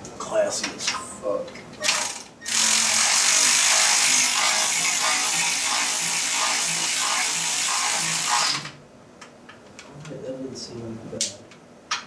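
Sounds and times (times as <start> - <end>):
power ratchet whirring: 1.8 - 8.8.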